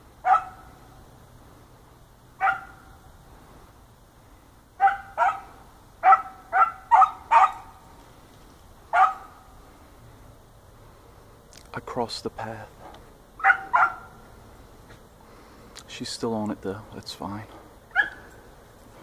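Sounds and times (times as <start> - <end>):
dog barking: 0.2 - 0.8, 2.4 - 3.0, 4.8 - 7.8, 8.9 - 9.4, 13.4 - 14.2, 17.9 - 18.2.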